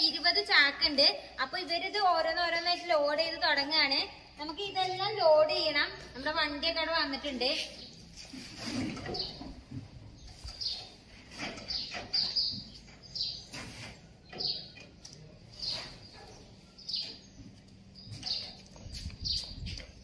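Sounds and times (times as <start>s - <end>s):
bird chirping: 7.5s - 20.0s.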